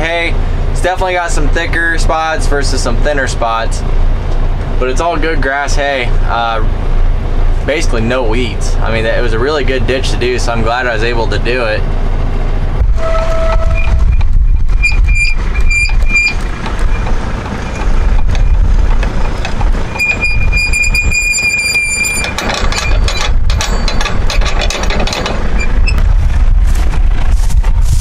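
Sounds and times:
diesel tractor idling: 0:00.0 - 0:28.0
electronic alarm beeps: 0:13.0 - 0:17.1, 0:19.9 - 0:23.1.

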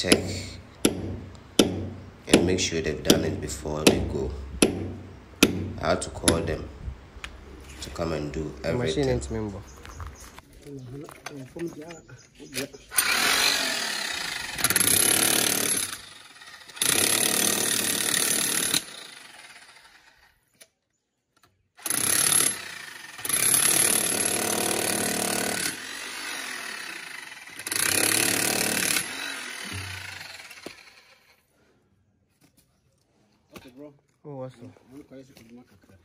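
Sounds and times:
demolition hammer hammering ground: 0:00.0 - 0:06.6, 0:21.9 - 0:26.6, 0:27.6 - 0:30.8.

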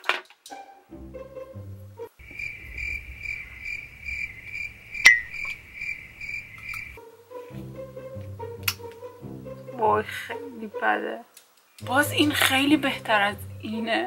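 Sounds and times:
light music: 0:00.0 - 0:02.2, 0:07.0 - 0:14.0
cricket chirping: 0:02.2 - 0:07.0.

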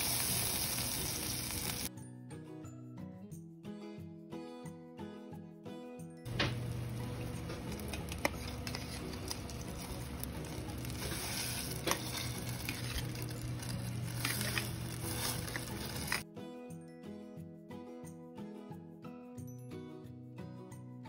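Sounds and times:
low steady hum: 0:06.3 - 0:16.2
pot bubbling at the boil: 0:06.3 - 0:16.2.

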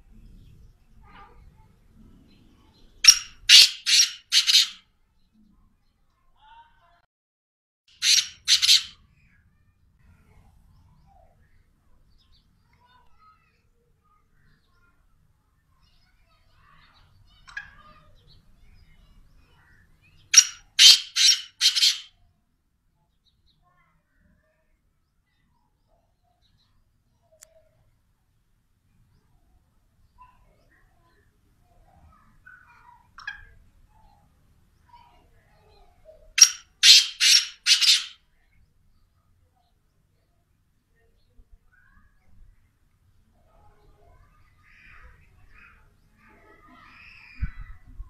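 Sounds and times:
bird harsh grating calls: 0:03.0 - 0:04.8, 0:07.9 - 0:09.0, 0:20.2 - 0:22.1, 0:36.4 - 0:38.2
faint soft chirps: 0:37.8 - 0:48.0.

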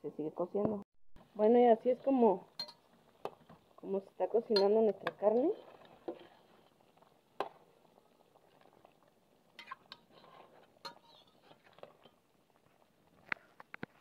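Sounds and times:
faint bubbling in pot: 0:00.2 - 0:14.0.

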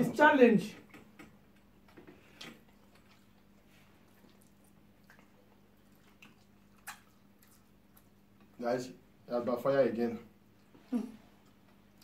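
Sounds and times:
faint chewing and mouth clicks: 0:00.8 - 0:08.6, 0:10.4 - 0:12.0.

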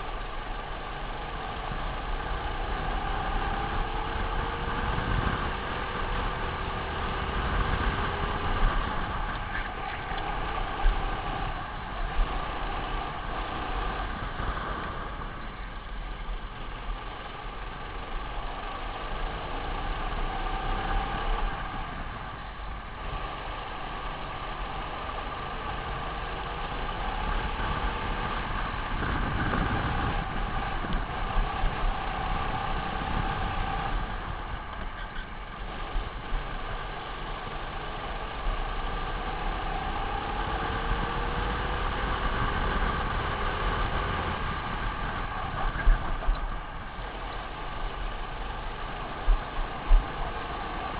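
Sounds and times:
wind rumble on microphone: 0:00.0 - 0:17.3, 0:25.6 - 0:50.9
kart engine revving: 0:16.5 - 0:50.9.

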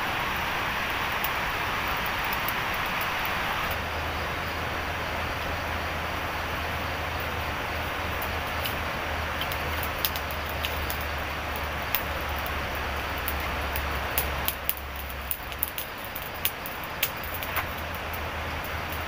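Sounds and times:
campfire crackling and popping: 0:00.0 - 0:19.0
steady hiss: 0:00.0 - 0:19.0.

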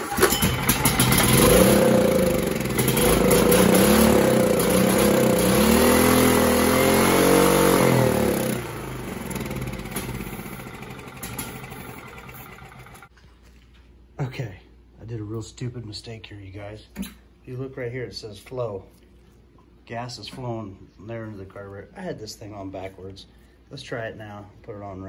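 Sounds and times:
engine dying and winding down: 0:00.0 - 0:13.1
generator engine running unevenly: 0:00.0 - 0:13.1.

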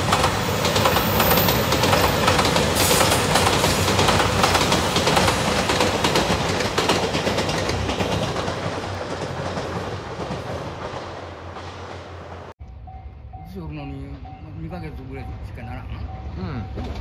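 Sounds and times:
train wheels clicking over rail joints: 0:00.0 - 0:12.5.

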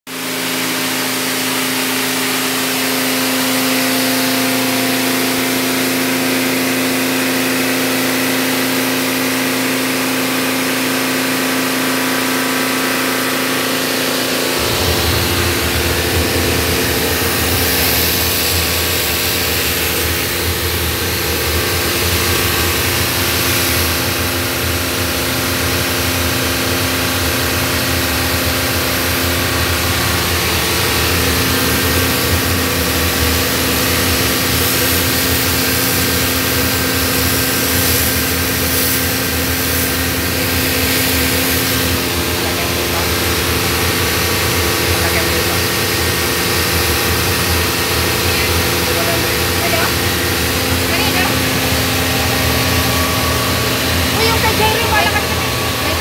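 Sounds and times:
pressure washer motor humming: 0:00.1 - 0:56.0
water jet hissing on paving: 0:00.2 - 0:56.0
deep rumble: 0:14.4 - 0:24.0.

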